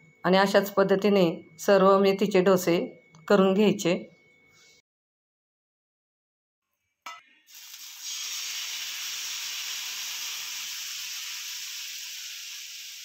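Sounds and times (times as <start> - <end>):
batter sizzling on hot griddle: 7.5 - 13.0.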